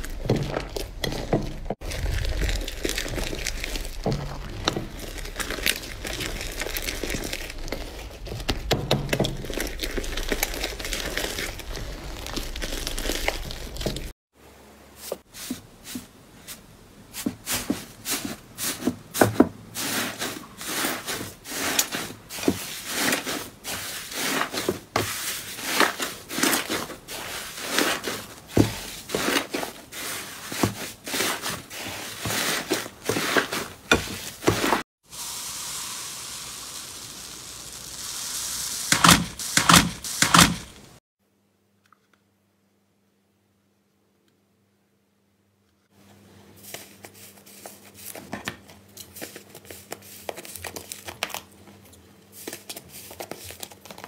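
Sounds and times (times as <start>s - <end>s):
slime squeezed with sticky crackling: 1.8s - 8.7s, 9.3s - 14.1s.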